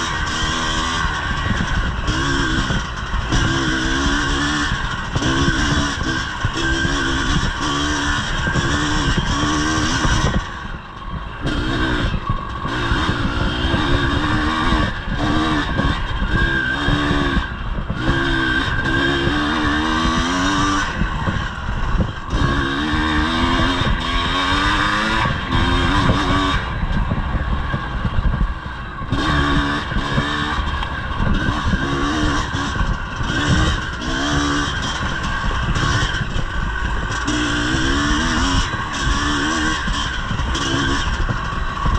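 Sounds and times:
two-stroke dirt bike engine revving: 0.0s - 41.9s.

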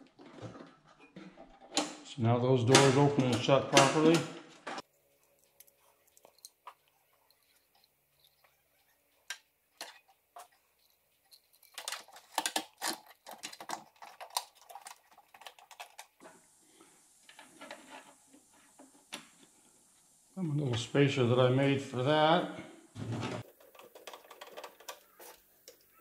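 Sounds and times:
rustling: 4.8s - 20.3s.

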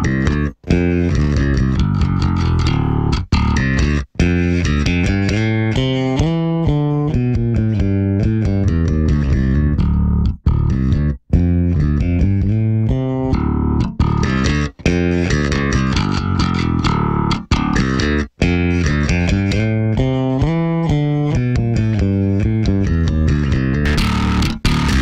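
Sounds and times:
electric bass riff: 0.0s - 25.0s.

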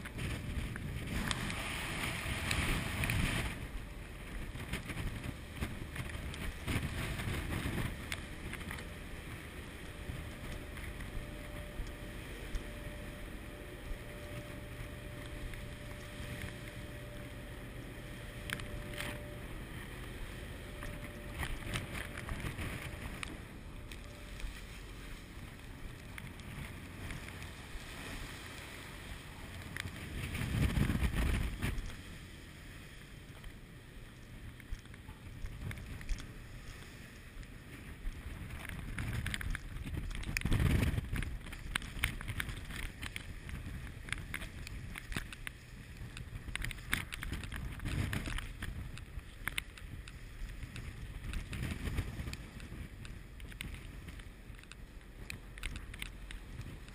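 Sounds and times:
wind buffeting microphone: 0.0s - 32.2s, 37.5s - 56.9s
rough sea: 0.0s - 56.9s
small scattered ticks: 38.1s - 56.9s.

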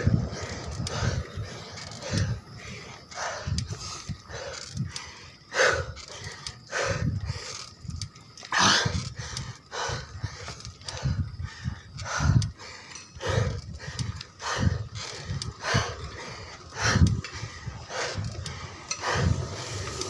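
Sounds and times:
heavy labored breathing: 0.0s - 20.0s.

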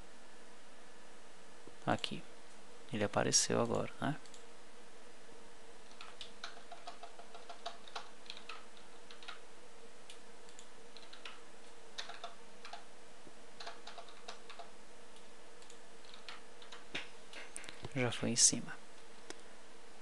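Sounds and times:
faint steady hum: 0.0s - 20.0s
keyboard keystrokes and clicks: 5.8s - 9.4s, 10.1s - 11.4s, 12.0s - 12.9s, 13.6s - 17.1s.

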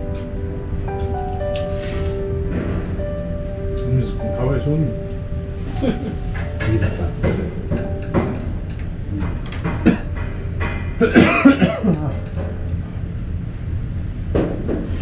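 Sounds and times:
steady low hum: 0.0s - 15.0s
person coughing: 11.0s - 12.1s.

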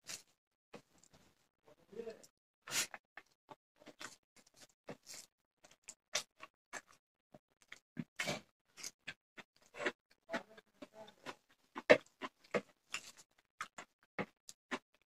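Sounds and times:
chewing and lip smacks: 2.9s - 7.0s, 7.6s - 15.0s.

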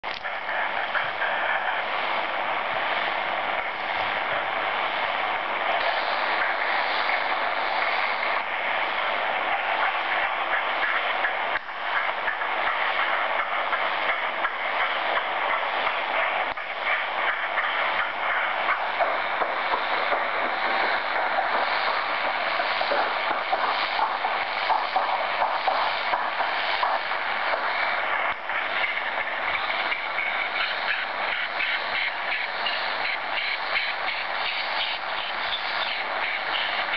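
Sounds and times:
radio fluttering hiss: 0.0s - 36.9s.

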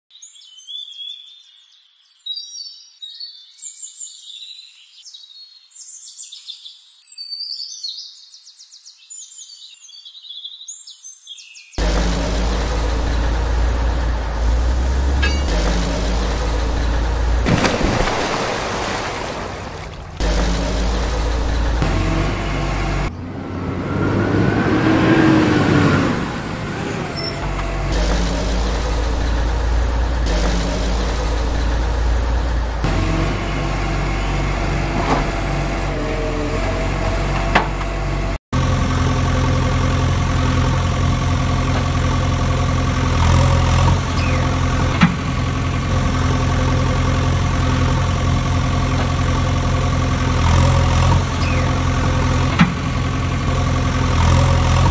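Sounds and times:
birds chirping: 0.1s - 11.9s, 44.0s - 44.8s, 51.3s - 51.9s
heavy truck engine running: 11.8s - 54.9s.

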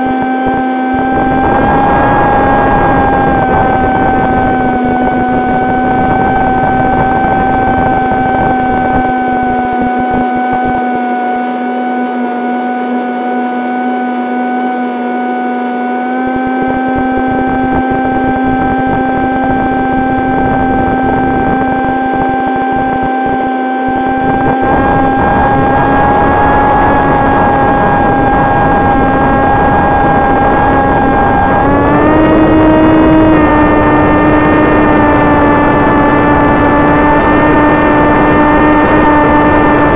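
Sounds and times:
electric motor and propeller droning: 0.0s - 39.9s
wind rumble on microphone: 0.0s - 39.9s.

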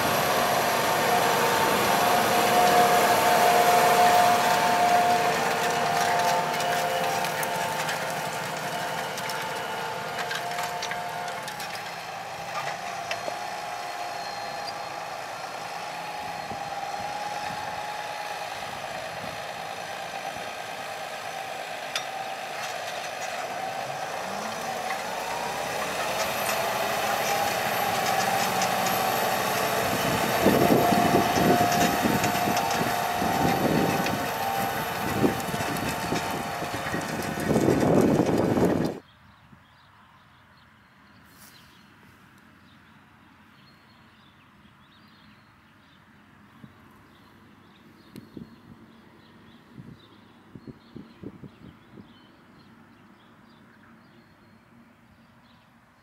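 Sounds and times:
plough rattling and clanking: 0.0s - 15.1s, 20.8s - 39.0s
steady whine: 0.0s - 39.0s
tractor engine under load: 0.0s - 39.1s.

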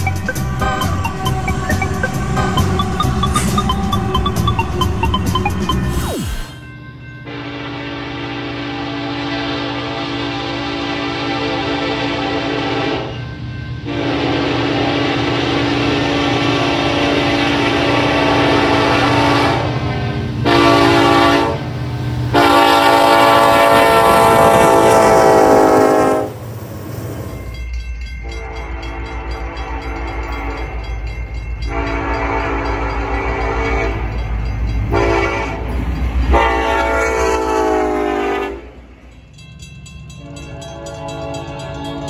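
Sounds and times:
train rumbling: 0.0s - 42.0s
locomotive horn blasts: 6.5s - 21.7s, 22.3s - 26.4s, 28.2s - 30.8s, 31.6s - 34.2s, 34.9s - 38.8s, 40.2s - 42.0s.

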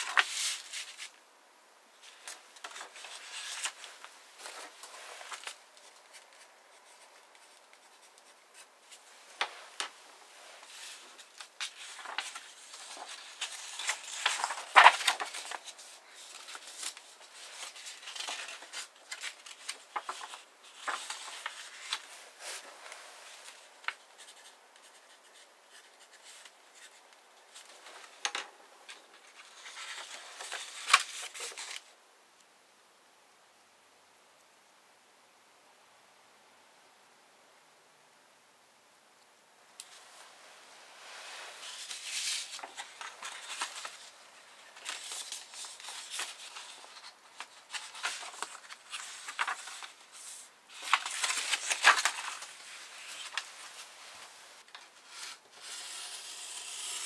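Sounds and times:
paper rustling and sliding: 0.0s - 1.2s, 2.0s - 31.9s, 39.8s - 57.0s.

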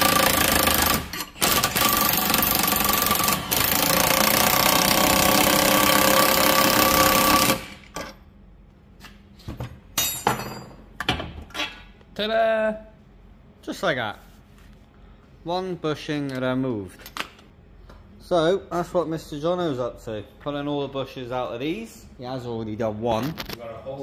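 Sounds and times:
impact wrench hammering: 0.0s - 8.2s.

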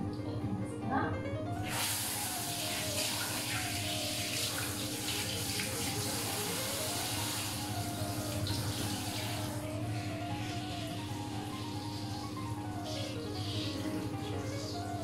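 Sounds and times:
soft background music: 0.0s - 15.0s
water spraying from shower head: 1.6s - 12.3s, 12.9s - 14.0s.

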